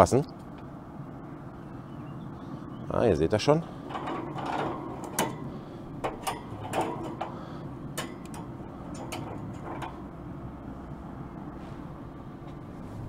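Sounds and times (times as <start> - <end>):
metal tongs clicking on grate: 3.9 - 10.1.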